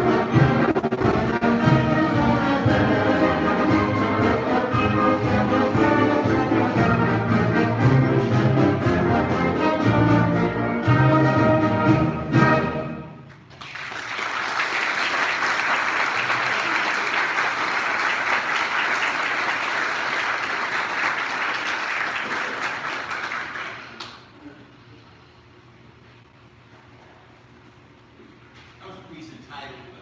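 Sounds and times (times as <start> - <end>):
audience applauding: 13.3 - 24.4.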